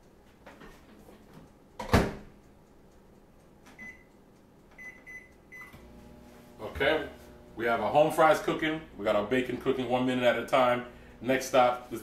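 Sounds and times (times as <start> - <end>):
keypad beeps: 3.8 - 4.1, 4.8 - 5.8.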